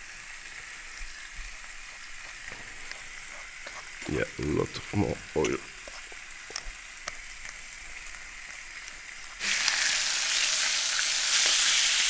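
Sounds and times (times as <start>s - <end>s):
meat sizzling in hot pan: 0.0s - 4.2s, 5.0s - 12.0s.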